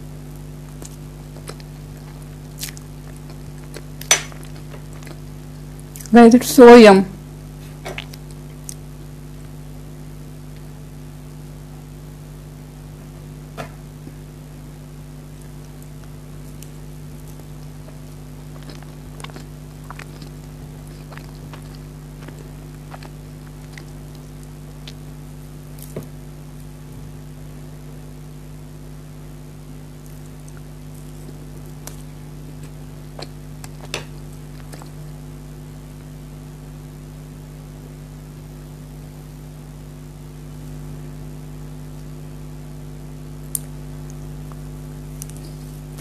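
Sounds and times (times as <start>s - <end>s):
chewing and mouth sounds: 0.7s - 6.1s, 15.4s - 25.1s, 30.0s - 35.2s.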